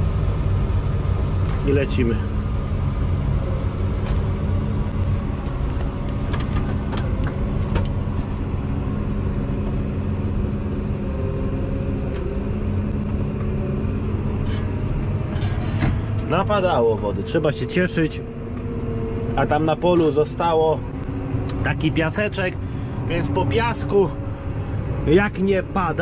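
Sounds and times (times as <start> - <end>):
tractor diesel engine running: 0.0 - 26.0.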